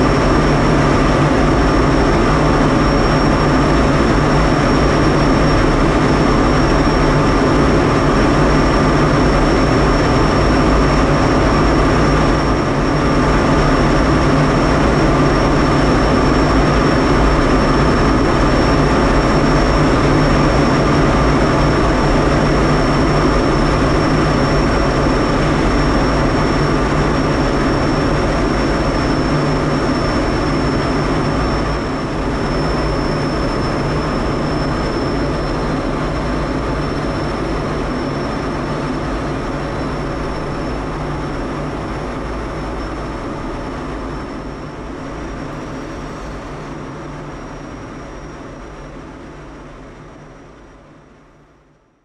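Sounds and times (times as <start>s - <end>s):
jet engine noise in cockpit: 0.0s - 52.0s
thin high whine: 0.0s - 52.0s.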